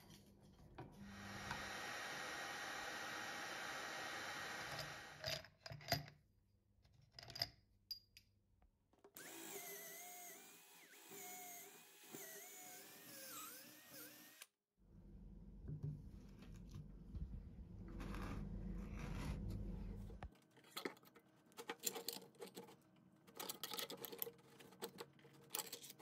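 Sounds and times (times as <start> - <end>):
electric drill boring into wood: 1.0 - 5.2, 9.2 - 14.6
vacuum running: 1.0 - 5.2.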